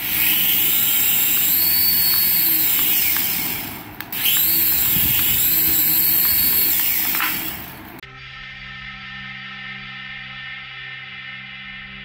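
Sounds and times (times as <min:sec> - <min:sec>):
toy helicopter rotors whining: 0:00.0 - 0:08.0.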